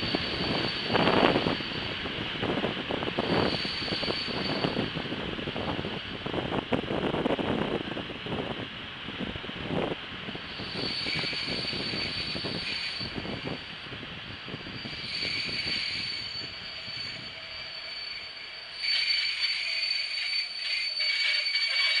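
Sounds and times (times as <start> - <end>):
high brake squeal: 3.2 - 4.9, 10.6 - 13.8, 14.4 - 22.0.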